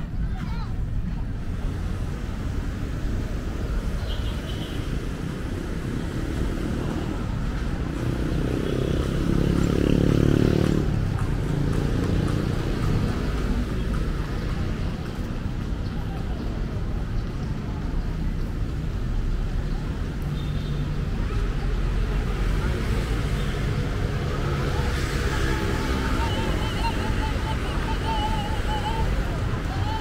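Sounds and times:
road traffic: 0.0 - 30.0
heavy vehicle engine passing: 22.0 - 30.0.

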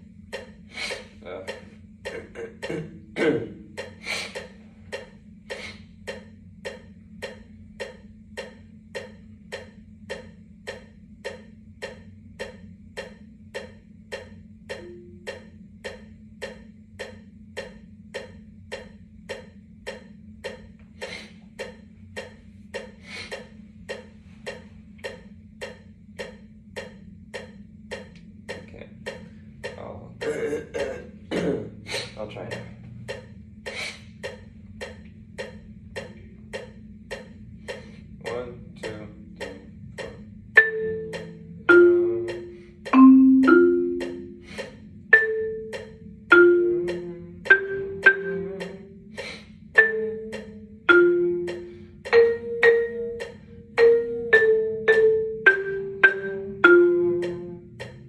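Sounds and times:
marimba melody: 13.0 - 18.4, 38.7 - 58.0.

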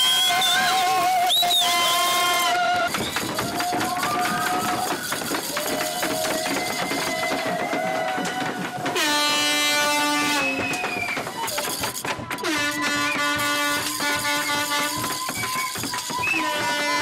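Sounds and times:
toy horns blaring: 0.0 - 17.0
ratchet noisemakers whirring: 2.9 - 8.8, 10.8 - 12.7, 13.3 - 16.5.

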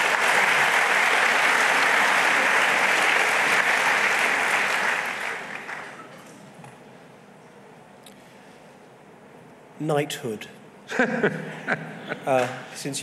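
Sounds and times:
audience applauding: 0.0 - 6.1.

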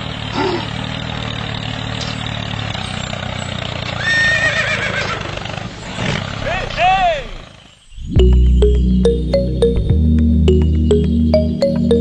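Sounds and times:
tractor engine running: 0.0 - 12.0.

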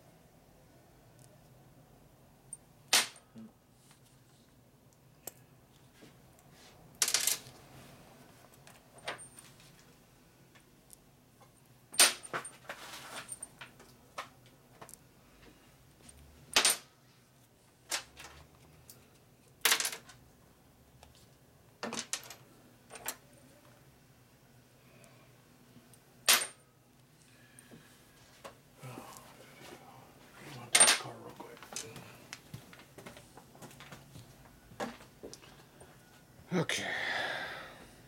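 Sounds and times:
faint hum: 22.4 - 38.0.

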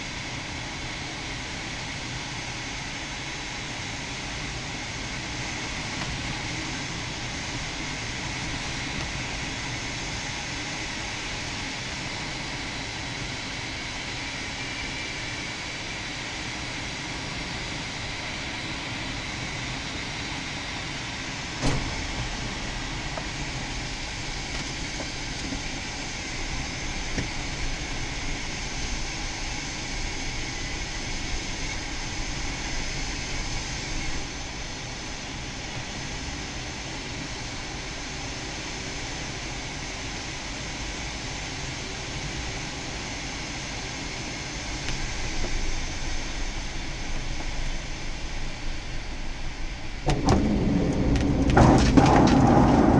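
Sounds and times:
air rushing past cockpit: 20.7 - 29.0, 49.4 - 52.9.

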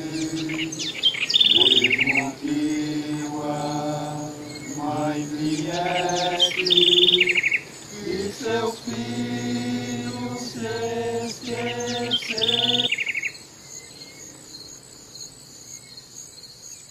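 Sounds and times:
short trilled call: 0.0 - 2.4
men chanting in held notes: 0.0 - 13.0
insects chirring: 0.0 - 16.9.

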